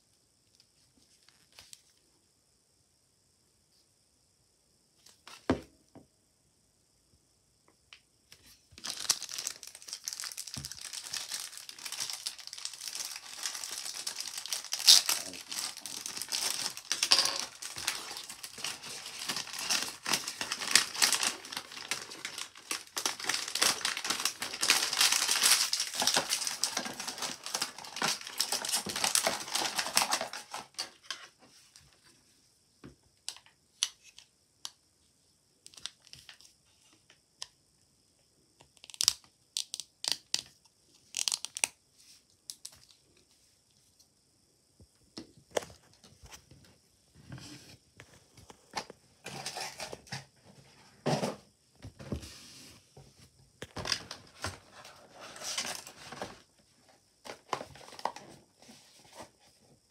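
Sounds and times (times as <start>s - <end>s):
plastic packaging crinkling: 8.8s - 31.0s.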